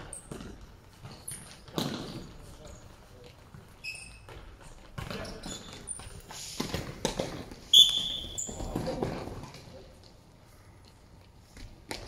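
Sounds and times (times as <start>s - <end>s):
shoes squeaking on court: 0.0s - 9.7s.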